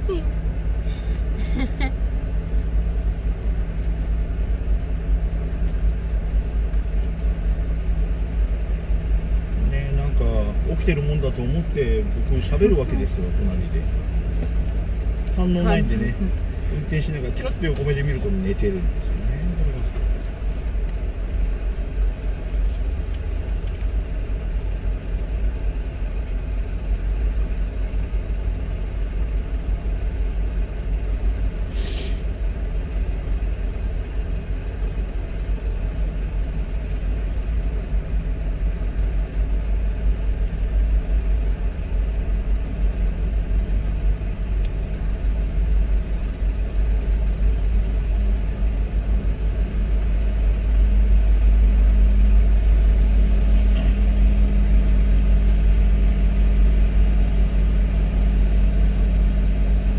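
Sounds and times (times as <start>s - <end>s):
car engine idling: 0.0s - 59.9s
short hiss: 31.7s - 32.3s.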